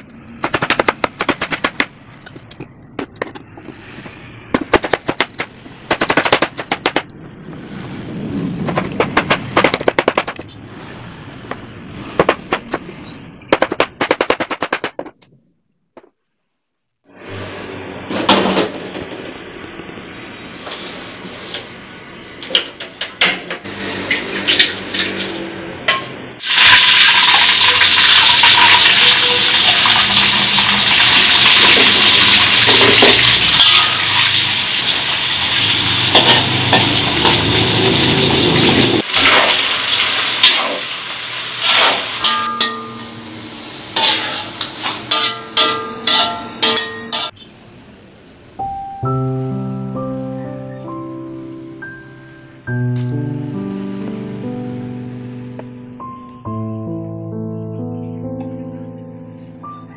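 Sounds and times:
potatoes sizzling in hot oil: 26.4 - 45.1
metal skimmer scraping a wok: 41.5 - 43.1, 43.9 - 47.4.

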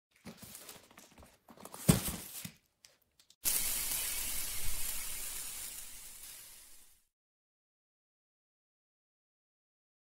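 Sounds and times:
handling knocks and rustles: 0.1 - 3.0
sparkling hiss: 3.4 - 7.1.

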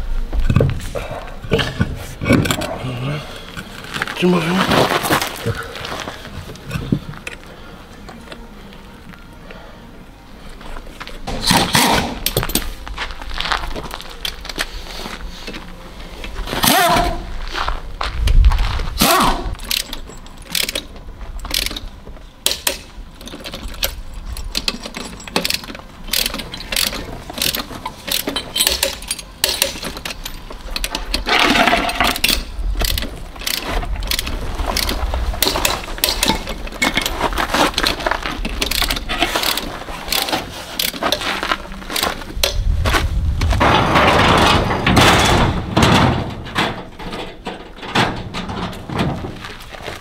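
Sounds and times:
ratchet clicks: 19.6 - 31.2, 31.9 - 37.1, 37.8 - 41.1
metal hand tools clinking: 22.6 - 41.2.

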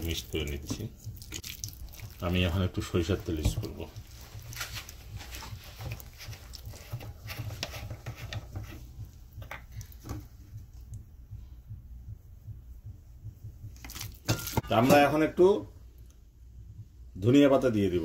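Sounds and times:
steady low rumble: 8.8 - 17.8.

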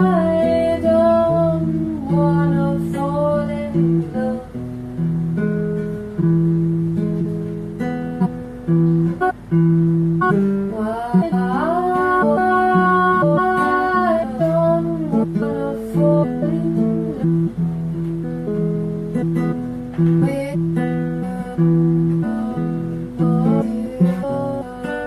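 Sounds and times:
person singing: 0.0 - 4.6, 10.2 - 17.5, 20.2 - 25.0
acoustic guitar plucked notes: 0.0 - 25.0.

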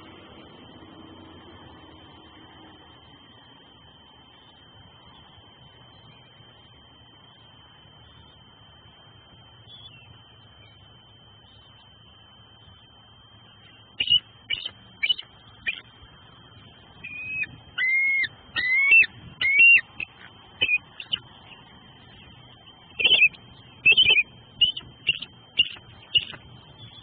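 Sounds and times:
eagle calling: 13.6 - 16.1, 16.9 - 27.0.

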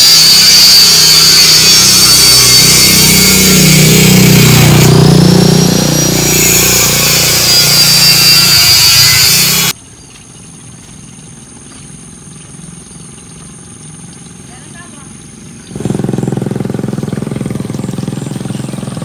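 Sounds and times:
motorbike passing: 0.0 - 9.7, 14.5 - 19.0
high-pitched buzzing hiss: 0.0 - 9.8.

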